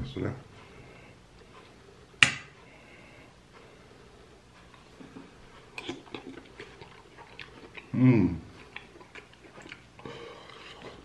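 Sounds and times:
person chewing food: 2.5 - 11.0
wet mouth clicks and smacks: 5.7 - 7.9.

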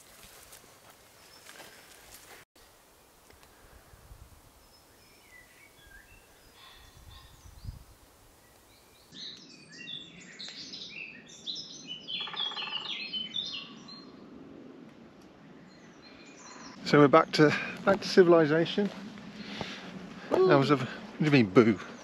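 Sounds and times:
birds singing: 4.6 - 14.3, 15.4 - 22.0.

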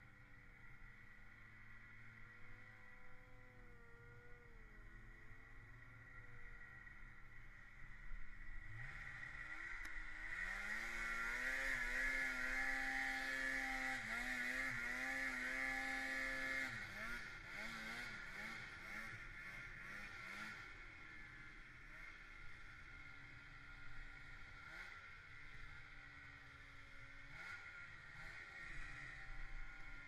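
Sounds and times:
snowmobile engine revving: 8.6 - 25.6, 27.2 - 30.0.

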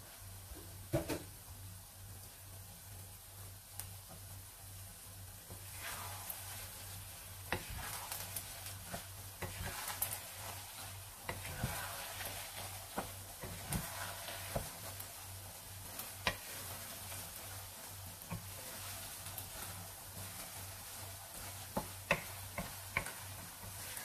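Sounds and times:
rice mixture sizzling in a pan: 0.0 - 24.0
wooden spatula knocking a pan: 16.2 - 16.6, 21.4 - 23.8.

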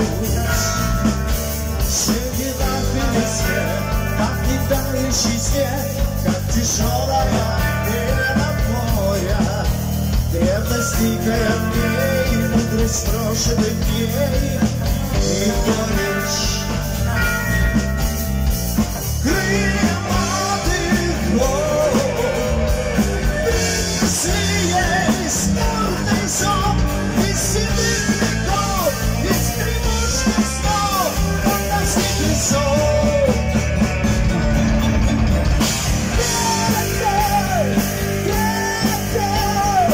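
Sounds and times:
man singing: 0.0 - 18.1, 19.0 - 34.5, 36.1 - 39.9
live hard rock band: 0.0 - 39.9.

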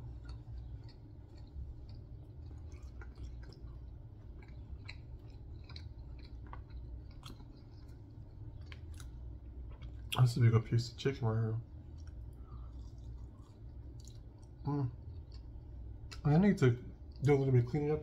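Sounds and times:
person chewing: 0.0 - 10.2, 11.6 - 16.3
low steady hum: 0.0 - 18.0.

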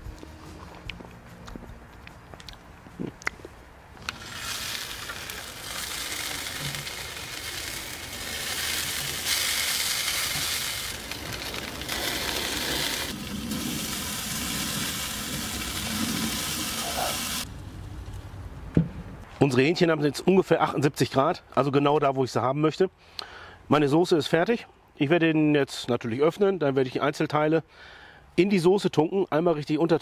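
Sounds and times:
meat sizzling on a grill: 4.1 - 17.5.

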